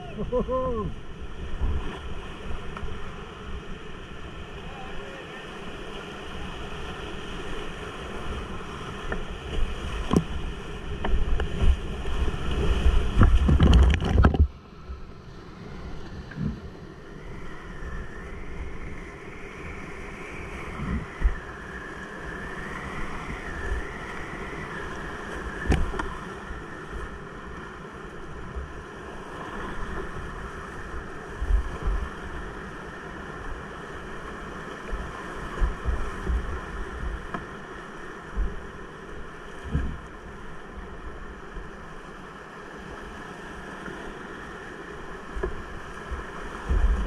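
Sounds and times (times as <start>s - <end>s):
rushing whitewater: 0.0s - 16.2s
knocks against kayak hull: 13.1s - 14.5s.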